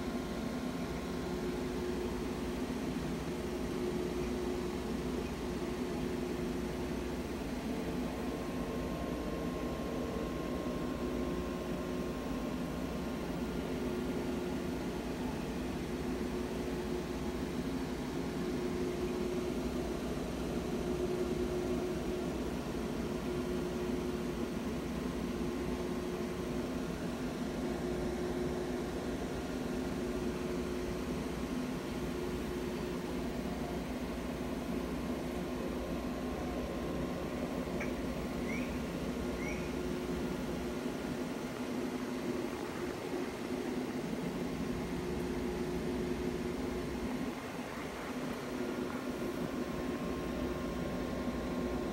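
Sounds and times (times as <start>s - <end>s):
mechanical hum with hiss: 0.0s - 51.9s
faint short squeaks: 37.8s - 38.8s, 39.4s - 39.8s.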